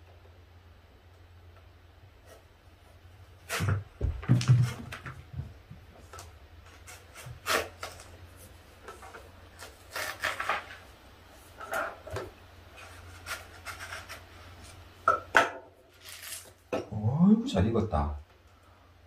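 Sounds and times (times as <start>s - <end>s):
knife cutting through melon: 6.7s - 8.1s, 9.6s - 10.6s.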